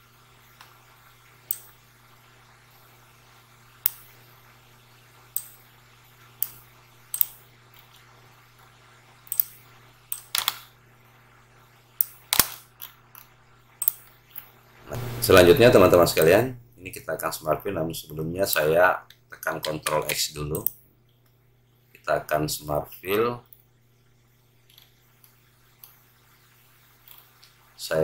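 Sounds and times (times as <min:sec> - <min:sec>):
faint low hum: 0:00.0 - 0:28.0
mouse and keyboard clicks: 0:06.4 - 0:08.0, 0:09.2 - 0:10.7.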